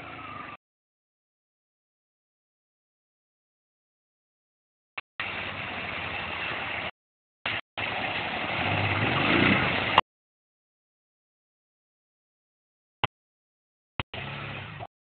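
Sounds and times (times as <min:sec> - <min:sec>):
water splashing around wheels: 0:05.2 - 0:10.0.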